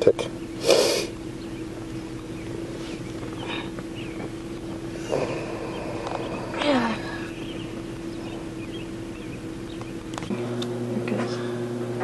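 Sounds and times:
deeper steady hum: 0.0s - 12.0s
steady background hum: 0.0s - 12.0s.

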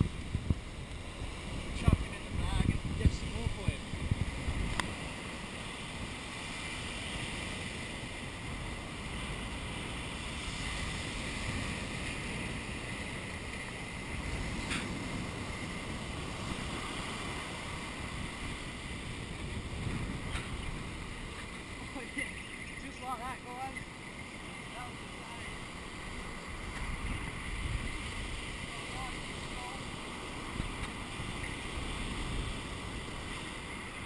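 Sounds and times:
wind noise on microphone: 0.0s - 22.9s, 23.8s - 34.0s
surf breaking on beach: 0.0s - 34.0s.

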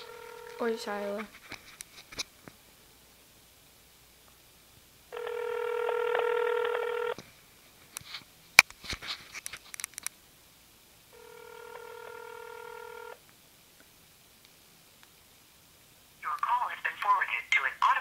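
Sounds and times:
telephone ringback tone: 0.0s - 0.7s, 5.1s - 7.2s, 11.1s - 13.2s.

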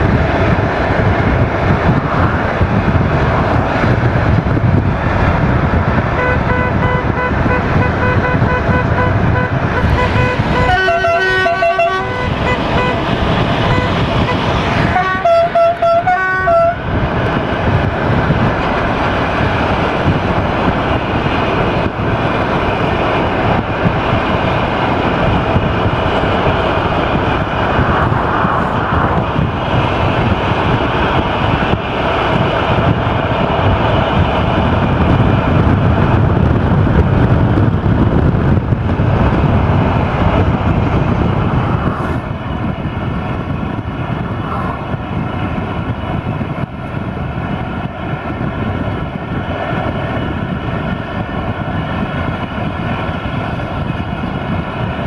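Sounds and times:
road and wind noise: 0.0s - 55.0s
train rumble: 0.0s - 55.0s
two-tone horn: 6.1s - 16.8s.

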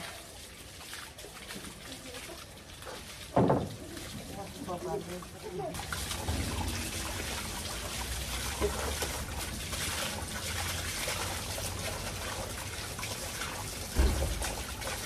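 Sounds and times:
hose water running over dog: 0.0s - 15.0s
water splashing on ground: 0.0s - 15.0s.

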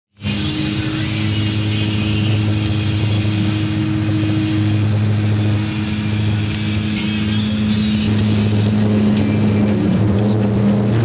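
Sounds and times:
dredge engine droning: 0.1s - 11.0s.

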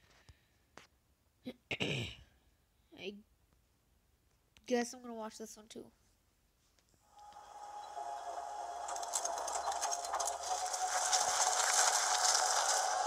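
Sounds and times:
steady hum: 7.1s - 13.0s.

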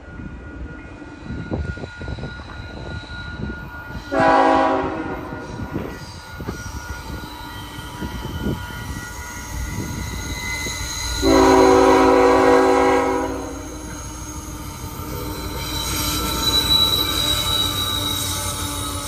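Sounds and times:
train rumble: 0.0s - 19.0s
high wheel squeal: 1.1s - 19.0s
locomotive air horn: 4.1s - 5.4s, 11.2s - 13.8s.

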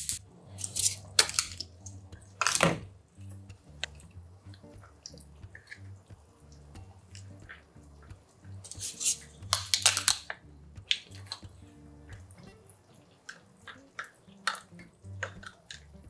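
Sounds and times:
metal spoon scraping plastic cup: 0.0s - 1.6s, 8.7s - 10.2s
soft wet plops: 1.0s - 16.0s.

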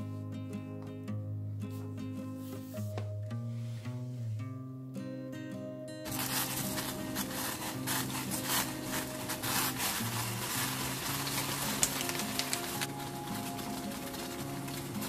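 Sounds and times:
soft guitar music: 0.0s - 15.0s
water boiling and bubbling: 6.1s - 15.0s.

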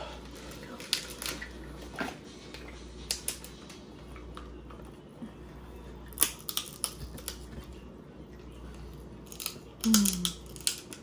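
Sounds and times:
low steady hum: 0.0s - 11.0s
shells cracking open: 6.1s - 7.4s, 9.2s - 11.0s.

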